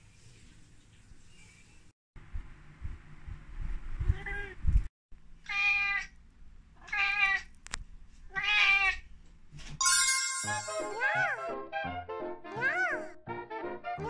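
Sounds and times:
cat meowing: 5.4 - 6.2, 6.8 - 7.5, 8.3 - 9.0, 12.5 - 13.1
bright burst of music: 9.8 - 11.3.

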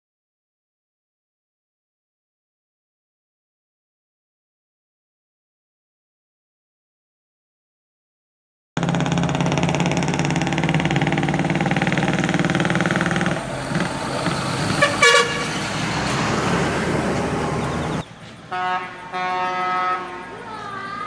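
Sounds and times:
truck diesel engine running: 8.8 - 21.0
short horn toot: 14.7 - 15.6.

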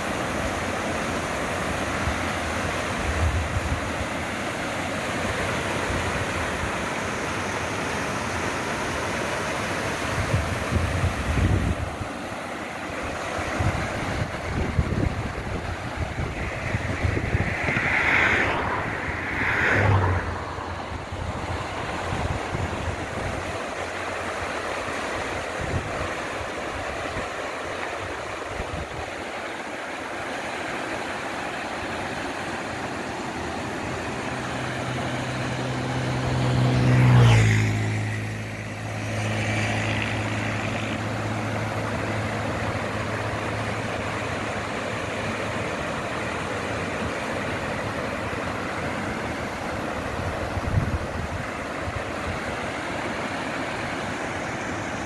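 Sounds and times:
floodwater rushing: 0.0 - 55.0
vehicle passing by: 12.9 - 29.0, 30.4 - 55.0.

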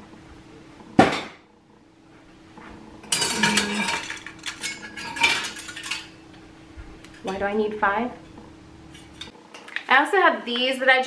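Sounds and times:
metal utensils clattering: 3.0 - 6.3, 7.0 - 9.3.

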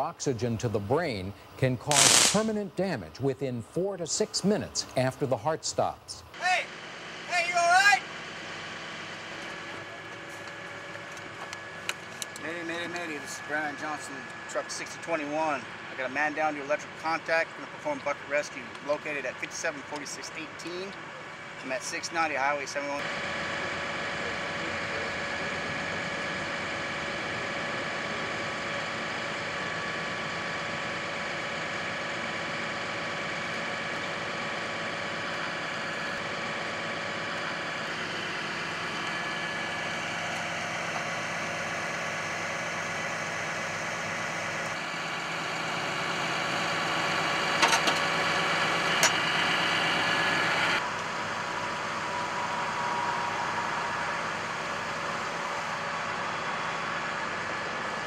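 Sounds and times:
sharp clicks: 1.9 - 2.5
truck engine idling: 6.2 - 58.0.

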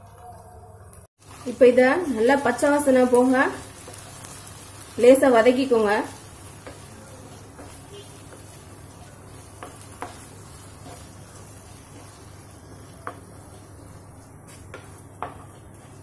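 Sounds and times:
paste sizzling: 1.1 - 16.0
spatula scraping paste in pan: 6.4 - 16.0
spatula knocking on pan: 9.4 - 13.7, 14.5 - 16.0.

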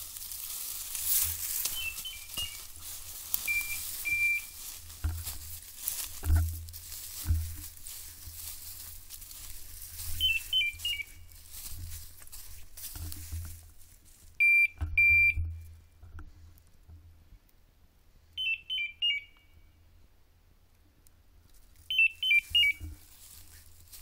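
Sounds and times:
electronic collar beeps: 3.4 - 4.6, 14.4 - 15.5, 18.4 - 19.4, 21.9 - 22.8.

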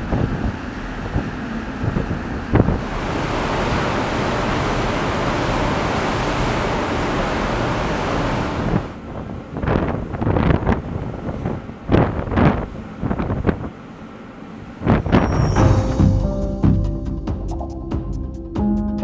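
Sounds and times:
wind buffeting microphone: 0.0 - 5.0, 8.4 - 13.8, 14.6 - 16.3
seawater rushing and churning: 0.0 - 15.9.

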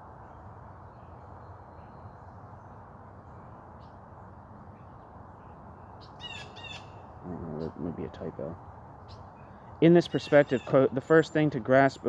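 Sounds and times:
distant bird calls: 0.0 - 12.0
low background noise: 0.0 - 12.0.

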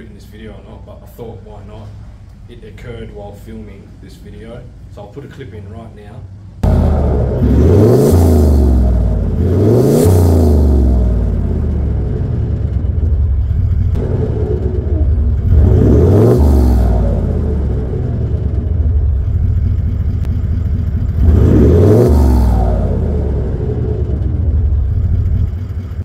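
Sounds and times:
diesel engine revving: 6.4 - 26.0.

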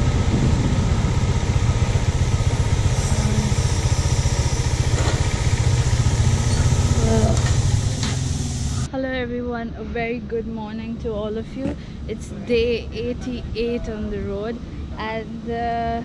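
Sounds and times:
motorcycle engine idling: 0.0 - 8.9.

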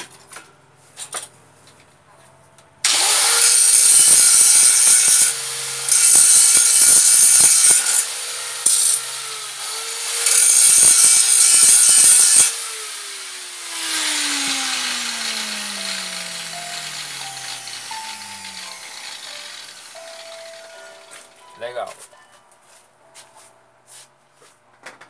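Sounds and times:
grinder disc spinning down: 2.9 - 20.7
angle grinder grinding metal: 2.9 - 21.3.

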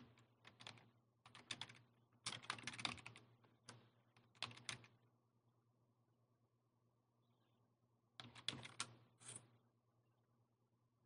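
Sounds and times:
faint keyboard typing: 0.0 - 5.0, 8.2 - 9.5.

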